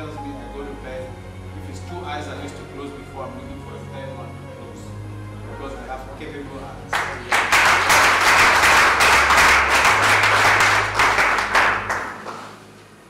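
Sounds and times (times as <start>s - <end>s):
audience applauding: 6.9s - 12.8s.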